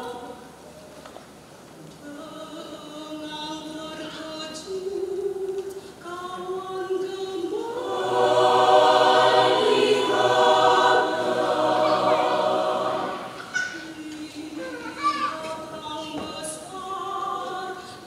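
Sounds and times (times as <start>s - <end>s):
choir singing held chords: 6.8s - 14.3s.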